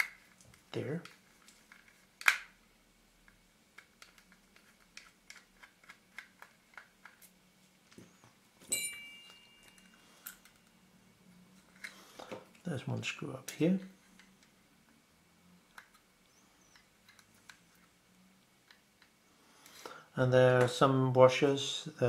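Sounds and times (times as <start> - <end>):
metal clink with ringing tone: 8.7 - 10.4.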